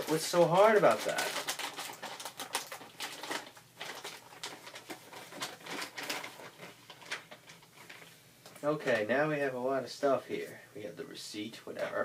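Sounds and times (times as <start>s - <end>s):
packaging rustling and crinkling: 0.0s - 9.0s.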